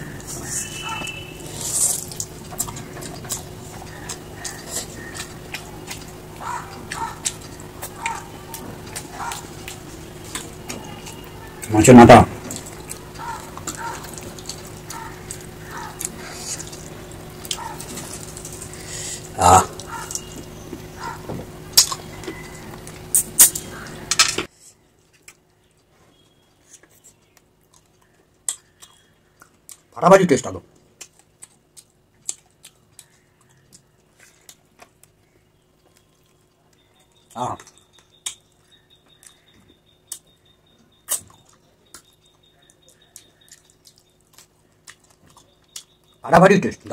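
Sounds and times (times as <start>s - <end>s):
wet chewing and lip smacks: 0.8s - 11.7s, 12.4s - 18.8s, 25.2s - 29.9s, 30.8s - 46.2s
fingers squishing food: 30.8s - 46.3s.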